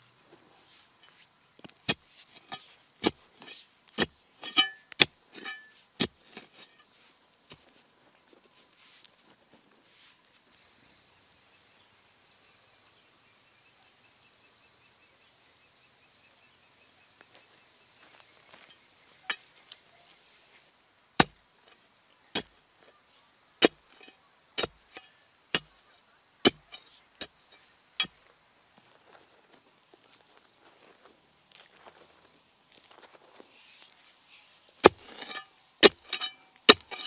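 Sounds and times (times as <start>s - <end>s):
insect drone: 0.0s - 37.0s
digging bar striking soil: 1.0s - 6.9s, 21.2s - 23.0s, 23.6s - 25.8s, 26.4s - 28.2s, 34.7s - 37.0s.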